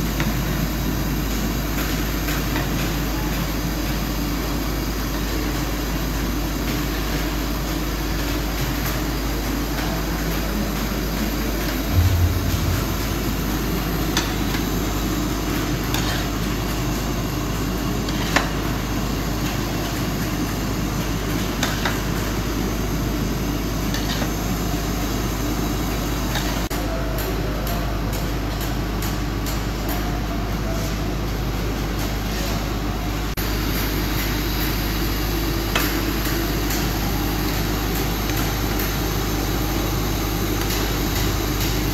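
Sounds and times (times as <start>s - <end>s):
heavy thump: 11.9s - 14.2s
low rumble: 11.9s - 14.2s.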